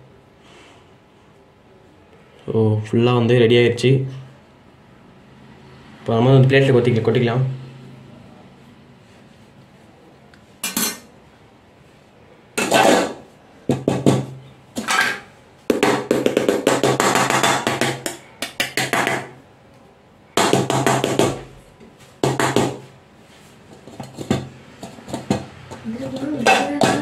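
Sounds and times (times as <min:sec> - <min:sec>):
metal bowl clanking on steel plate: 0:26.1 - 0:27.0.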